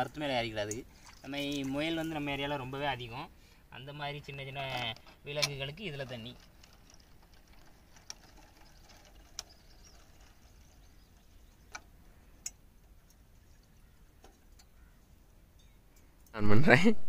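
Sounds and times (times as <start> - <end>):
water pouring: 0.0 - 3.1, 5.7 - 11.7.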